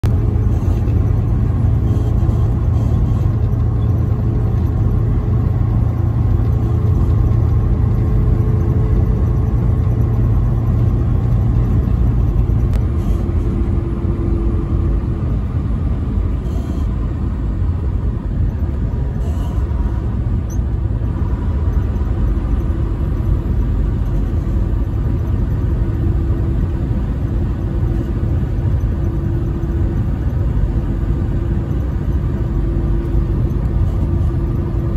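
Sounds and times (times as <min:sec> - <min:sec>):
low hum: 0:00.0 - 0:34.9
road noise: 0:00.0 - 0:34.9
truck engine drone: 0:00.0 - 0:34.9.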